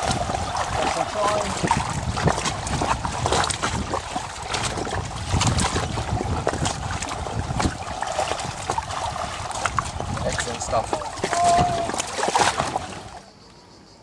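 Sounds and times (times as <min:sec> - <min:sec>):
wind buffeting microphone: 0:00.0 - 0:13.2
fish splashing away: 0:00.0 - 0:13.3
water sloshing and splashing: 0:00.0 - 0:13.3.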